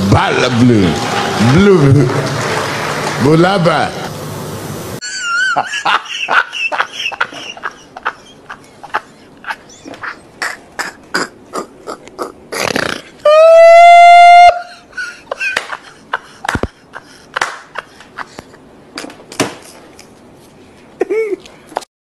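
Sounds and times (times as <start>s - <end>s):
hand claps: 0.9s - 3.3s, 15.4s - 15.8s, 16.4s - 16.8s, 17.4s - 17.8s
man laughing uncontrollably: 5.0s - 18.7s, 21.0s - 21.5s.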